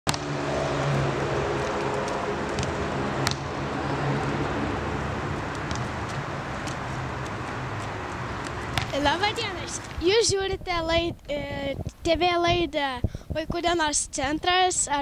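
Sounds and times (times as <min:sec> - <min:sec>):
vehicle engine humming: 0:00.1 - 0:10.2
urban traffic: 0:00.1 - 0:13.4
basketball bouncing knocks: 0:02.5 - 0:03.5, 0:05.6 - 0:07.3, 0:08.4 - 0:09.4.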